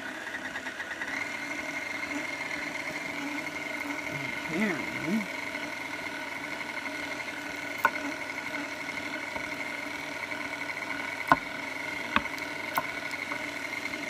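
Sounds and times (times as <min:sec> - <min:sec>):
stand mixer motor whine: 0:00.0 - 0:14.0
wooden plunger knocking: 0:12.1 - 0:12.9.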